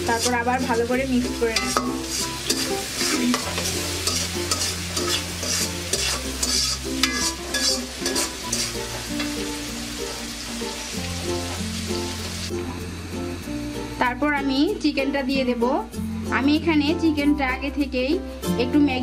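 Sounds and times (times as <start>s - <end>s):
metal spatula scraping a pan: 0.0s - 9.5s
vegetables sizzling in hot oil: 0.0s - 14.8s.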